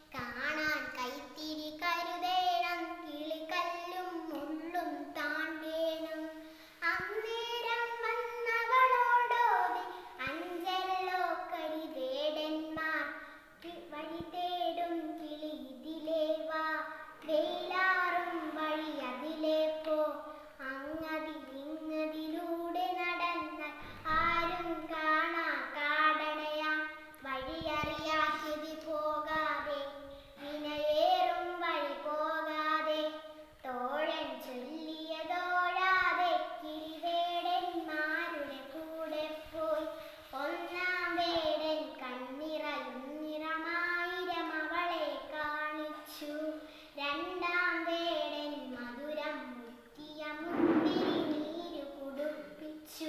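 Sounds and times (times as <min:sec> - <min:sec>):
girl chanting a poem: 0:00.0 - 0:53.0.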